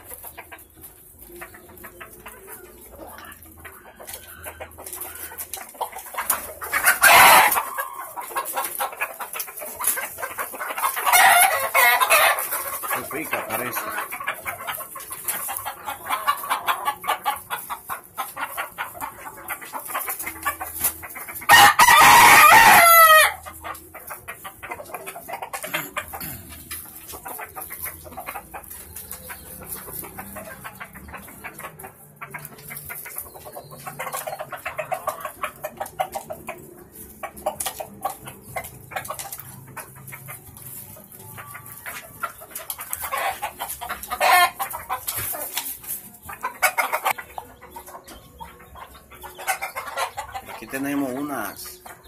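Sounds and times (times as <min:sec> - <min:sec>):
chickens clucking: 0:00.0 - 0:52.0
rooster crowing: 0:21.5 - 0:23.4.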